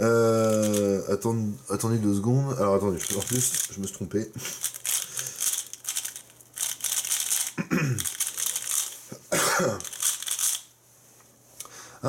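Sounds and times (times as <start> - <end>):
plastic puzzle cube clattering: 0.4 - 0.9, 3.0 - 3.9, 4.6 - 9.0, 9.8 - 10.7
cough-like burst: 7.5 - 8.1, 9.1 - 9.9.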